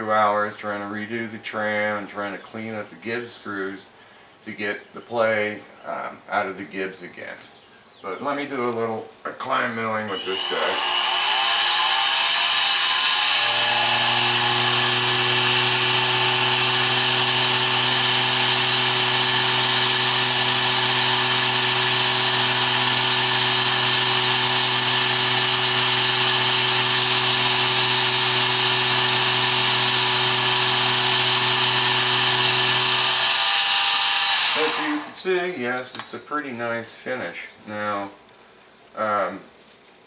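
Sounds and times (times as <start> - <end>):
milling machine cutting metal: 10.1 - 35.1.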